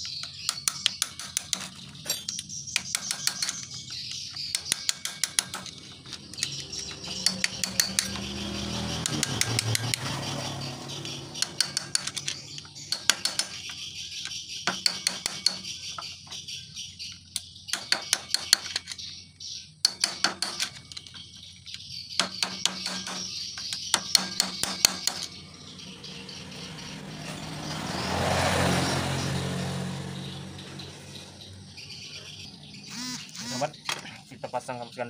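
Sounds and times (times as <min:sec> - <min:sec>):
hammer tapping metal punch: 0:00.0 - 0:08.4, 0:11.4 - 0:15.8, 0:17.7 - 0:19.0, 0:19.8 - 0:21.2, 0:22.2 - 0:25.4.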